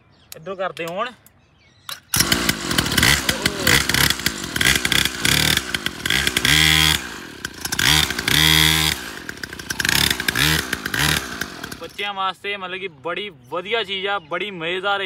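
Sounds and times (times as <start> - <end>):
small dirt bike engine revving: 2.0 - 12.0.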